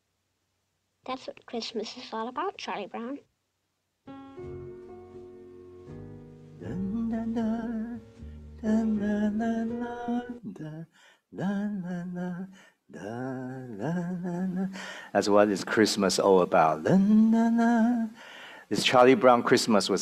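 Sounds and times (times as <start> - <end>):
soft steady accompaniment: 4.1 - 10.5
person singing long wavering notes: 6.6 - 10.8.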